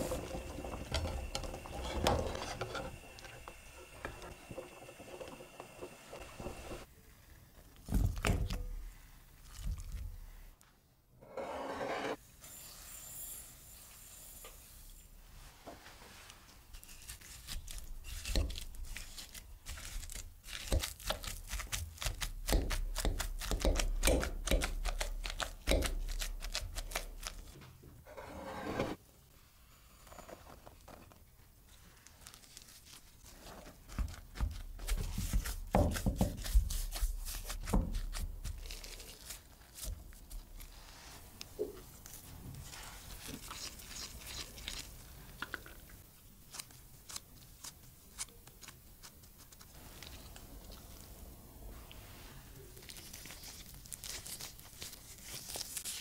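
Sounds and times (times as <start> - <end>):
potatoes being mashed: 16.9 - 27.5, 33.9 - 40.8.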